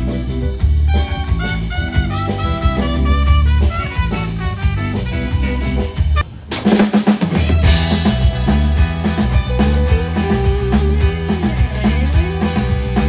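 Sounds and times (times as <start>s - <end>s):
live band music: 0.0s - 13.0s
song with drums and acoustic guitar: 0.0s - 13.0s
trumpet melody: 0.8s - 6.4s.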